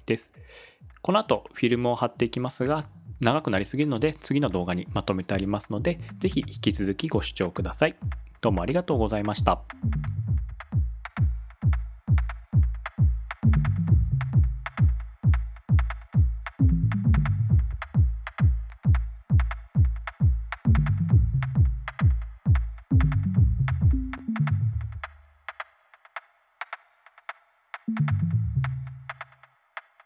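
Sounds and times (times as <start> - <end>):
kick drum: 0.4 - 1.1, 2.2 - 25.1
low bass line: 2.7 - 3.4, 5.4 - 6.9, 9.4 - 10.8, 13.4 - 14.7, 16.6 - 18.1, 20.7 - 22.0, 22.9 - 25.0, 27.9 - 29.1
electronic music: 2.7 - 7.0, 7.6 - 25.3, 27.9 - 29.4.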